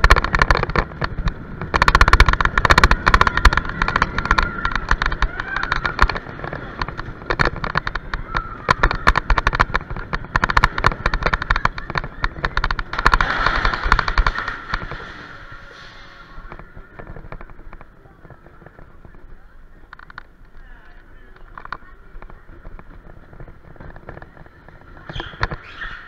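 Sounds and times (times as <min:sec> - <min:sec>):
coaster car rattling in metal trough: 0:00.0 - 0:19.2.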